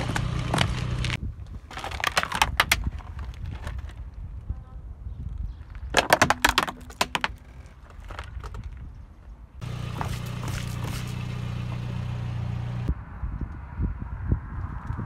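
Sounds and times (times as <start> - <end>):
hard plastic cracking: 1.6 - 4.2, 5.7 - 8.8
car engine humming: 9.6 - 12.9.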